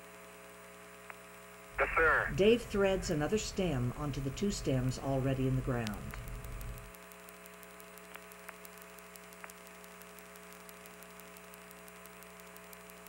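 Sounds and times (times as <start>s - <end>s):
radio hum and hiss: 0.0s - 13.0s
faint clicks: 5.8s - 13.0s.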